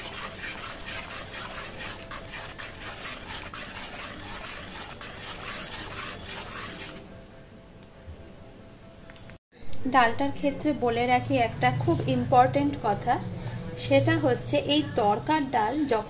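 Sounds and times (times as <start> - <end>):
spatula scraping thick dal: 0.0 - 7.0.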